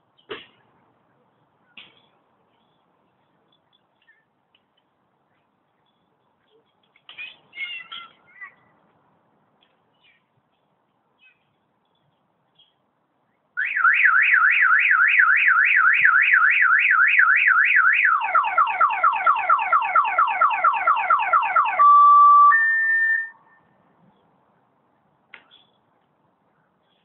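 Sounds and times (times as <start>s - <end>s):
car alarm siren: 13.6s - 23.5s.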